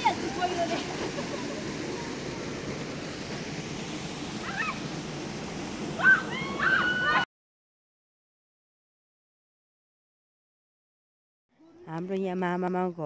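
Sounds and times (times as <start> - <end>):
river water flowing over rocks: 0.0 - 7.0.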